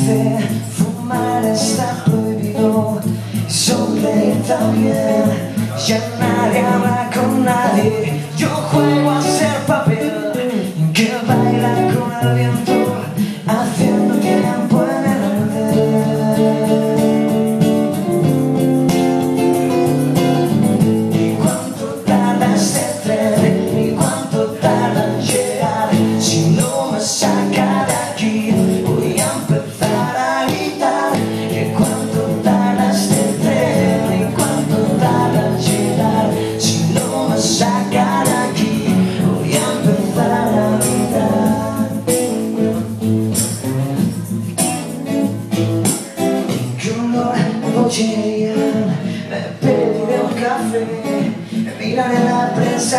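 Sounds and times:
men singing: 0.0 - 18.3, 19.3 - 44.3, 46.0 - 52.9
strummed acoustic guitar: 0.0 - 52.9.

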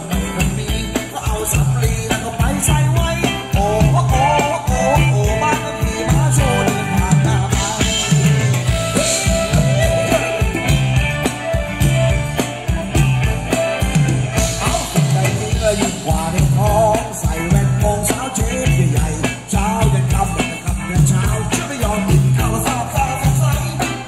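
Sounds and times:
drum and bass beat: 0.0 - 24.0
electric guitar: 0.0 - 24.0
keyboard: 0.0 - 24.0
person singing: 0.0 - 24.0.

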